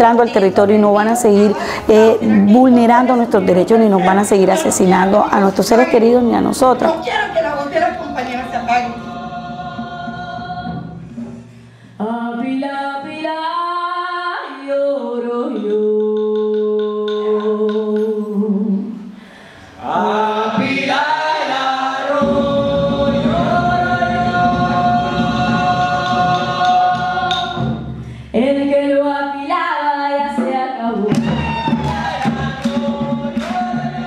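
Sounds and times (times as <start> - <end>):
slow a cappella singing: 7.7 - 34.0.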